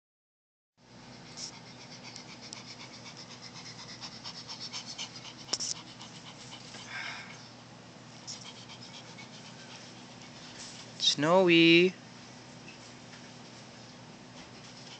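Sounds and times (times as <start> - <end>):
dog panting: 1.0 - 6.9, 8.2 - 11.0, 14.6 - 14.9.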